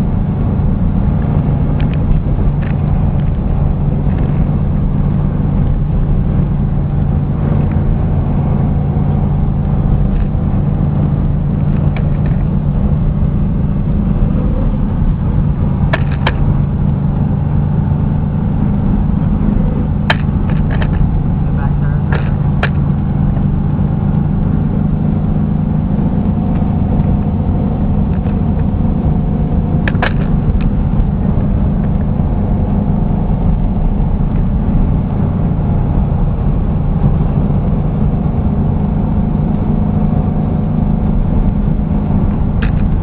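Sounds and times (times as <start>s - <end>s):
car engine droning: 0.0s - 43.0s
sharp knocks: 15.9s - 16.5s, 20.0s - 21.1s.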